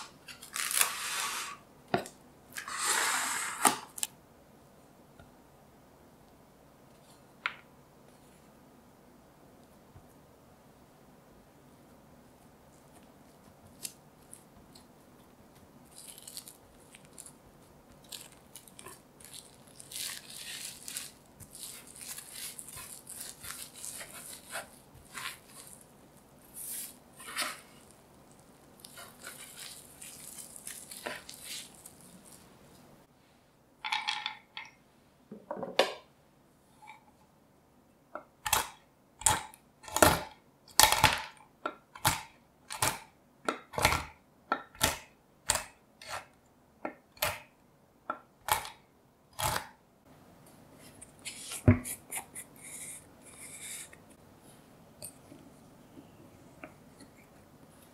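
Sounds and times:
plastic wrap crinkling: 0:15.8 - 0:32.8.

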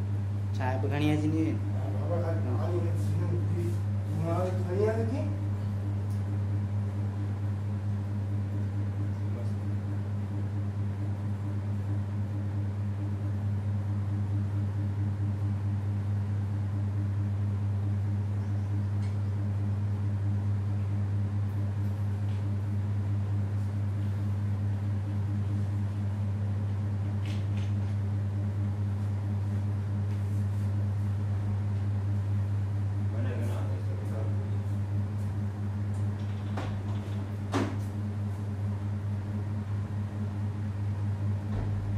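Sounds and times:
low electrical hum: 0:00.0 - 0:41.9.

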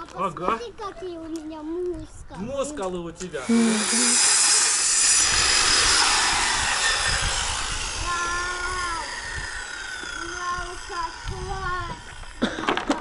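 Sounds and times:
circular saw cutting wood: 0:03.4 - 0:13.0.

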